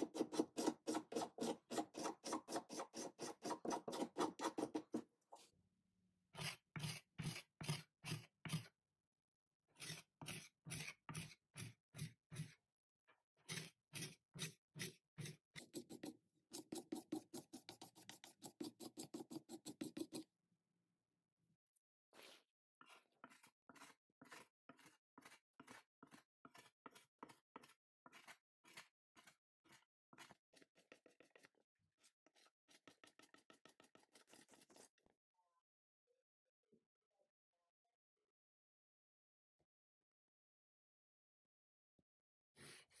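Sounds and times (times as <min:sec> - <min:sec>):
scraper scraping bark off wood: 0:00.0 - 0:05.0.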